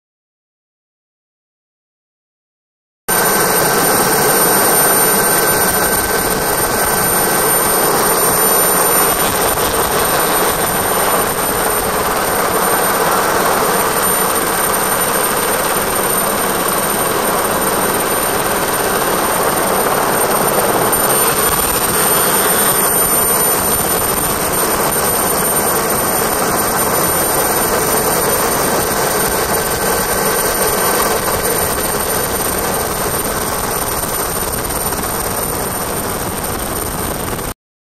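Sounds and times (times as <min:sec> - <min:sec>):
helicopter engine and rotor drone: 0:03.1 - 0:37.6.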